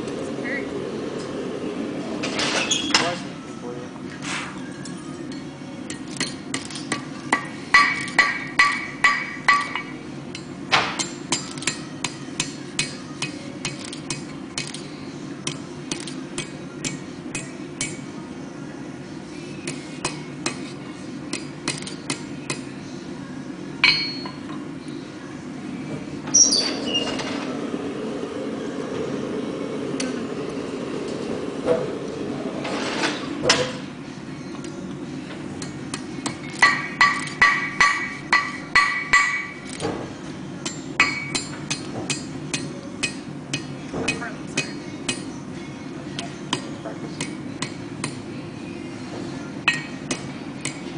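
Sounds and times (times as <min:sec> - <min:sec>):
hammer striking metal on anvil: 0:05.9 - 0:14.8, 0:23.8 - 0:24.4, 0:35.6 - 0:39.7, 0:40.6 - 0:45.4, 0:49.7 - 0:50.9
anvil ringing: 0:23.8 - 0:24.4.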